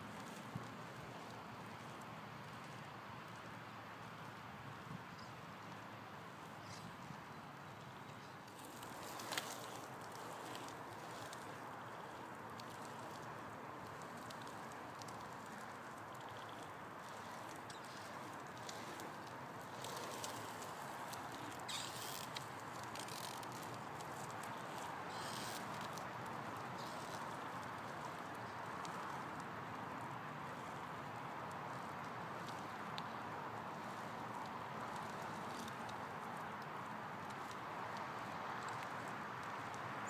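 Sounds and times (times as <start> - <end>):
scooter wheels rolling hiss: 8.5 - 30.8.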